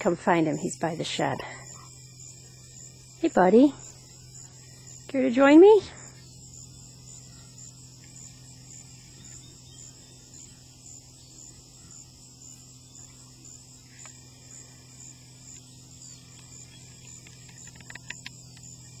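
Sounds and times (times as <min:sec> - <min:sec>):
insects chirping: 0:00.0 - 0:19.0
steady low hum: 0:00.0 - 0:19.0.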